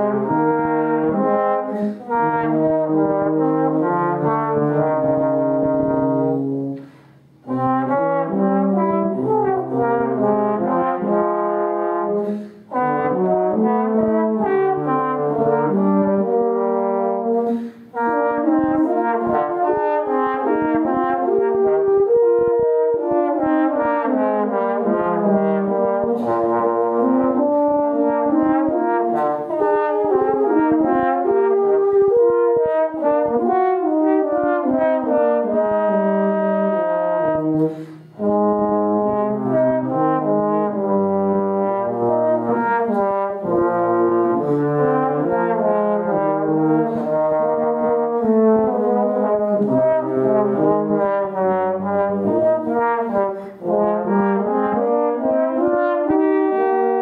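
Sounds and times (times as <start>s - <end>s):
brass accompaniment: 0.0s - 57.0s
trombone melody: 0.0s - 57.0s
breaths between phrases: 6.8s - 7.4s, 12.2s - 12.7s, 37.6s - 38.2s.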